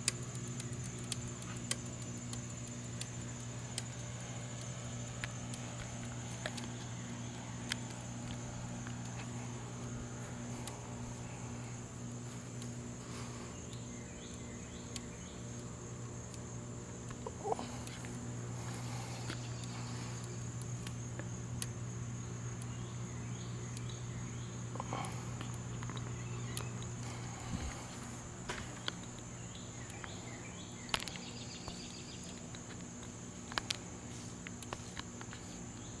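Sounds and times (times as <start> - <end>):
light clicks and ticks: 0.0 - 11.4
insect chorus: 0.0 - 36.0
low hum: 0.0 - 36.0.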